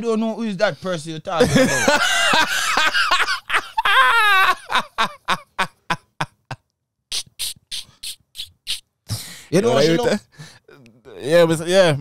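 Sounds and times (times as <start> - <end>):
man laughing hard: 1.4 - 6.6
breathy hissing gasps: 9.1 - 9.6, 10.3 - 10.7.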